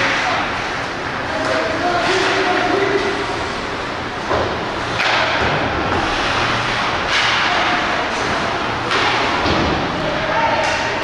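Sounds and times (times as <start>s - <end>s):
hockey hits: 4.2s - 9.8s.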